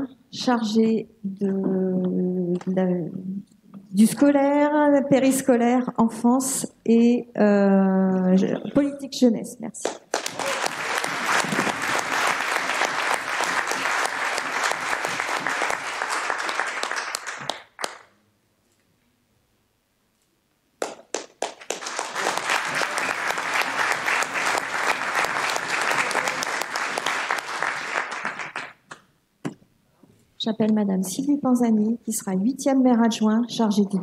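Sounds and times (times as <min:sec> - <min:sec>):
audience applauding: 0:09.9 - 0:18.1, 0:20.8 - 0:28.8.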